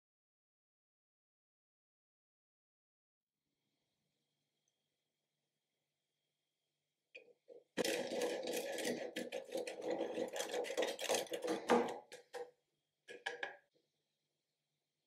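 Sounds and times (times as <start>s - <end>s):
cheese grating on metal grater: 7.8s - 12.4s.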